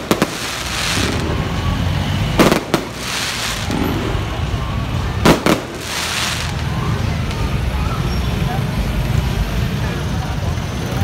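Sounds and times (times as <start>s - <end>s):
firework shells bursting: 2.4s - 4.3s, 5.2s - 6.6s.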